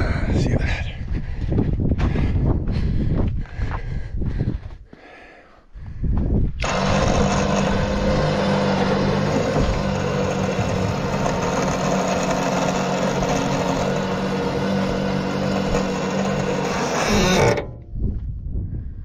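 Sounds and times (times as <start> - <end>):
motor winch running: 6.6 - 17.8
steel dragging on deck: 6.6 - 17.8.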